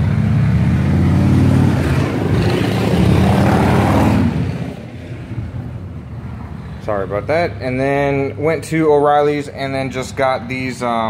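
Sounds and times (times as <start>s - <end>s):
loud engine running: 0.0s - 5.7s.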